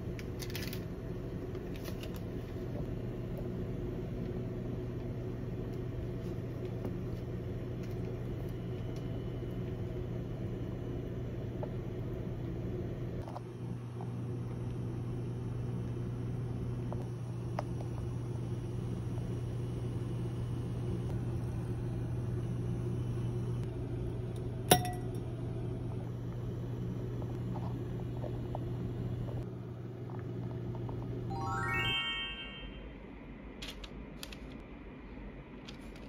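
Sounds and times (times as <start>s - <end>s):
stovetop hum and rumble: 0.0s - 31.4s
rising chime notes: 31.3s - 33.0s.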